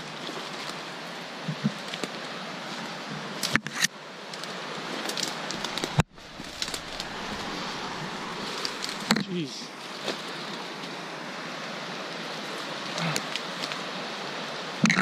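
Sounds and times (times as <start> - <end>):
brush and twigs rustling and snapping: 3.4 - 9.3, 12.5 - 13.9.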